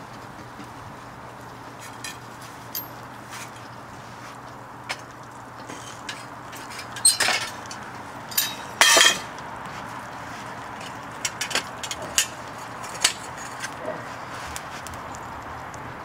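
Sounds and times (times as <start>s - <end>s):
metal tongs and crucible clanking: 1.8s - 3.7s, 4.9s - 9.4s, 10.8s - 13.8s.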